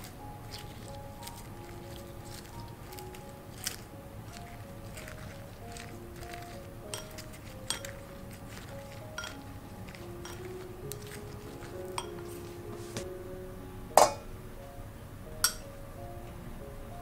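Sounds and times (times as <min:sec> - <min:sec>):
soft background music: 0:00.0 - 0:17.0
chopsticks clicking on glass bowl: 0:04.4 - 0:12.3
sharp clink: 0:14.0 - 0:14.2, 0:15.4 - 0:15.6.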